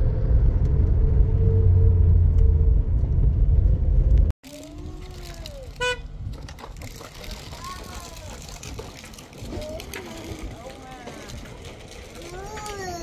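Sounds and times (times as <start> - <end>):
road rumble inside car: 0.0 - 8.4.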